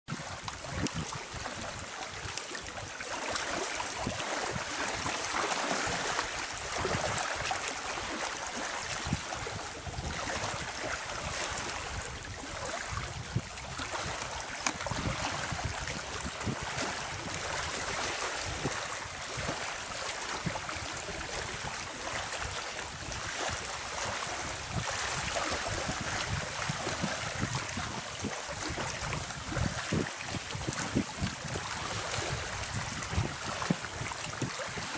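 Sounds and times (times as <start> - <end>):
wind: 0.0 - 34.9
lake waves lapping: 0.1 - 34.9
small water splashes: 0.1 - 34.9.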